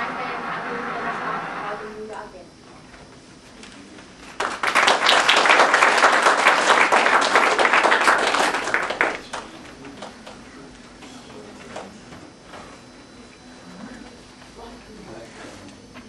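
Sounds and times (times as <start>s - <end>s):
audience applauding: 4.3s - 10.4s.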